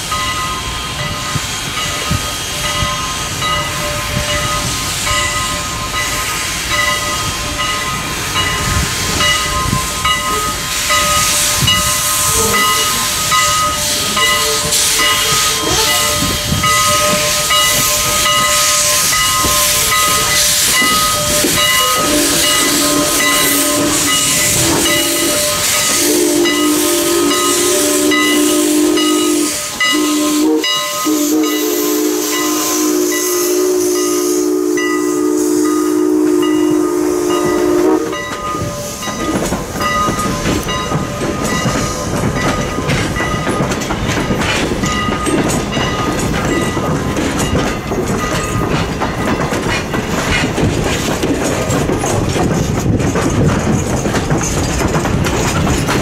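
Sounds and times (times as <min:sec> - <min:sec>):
chime steam whistle: 0:00.0 - 0:43.6
steam locomotive hissing: 0:00.0 - 0:56.0.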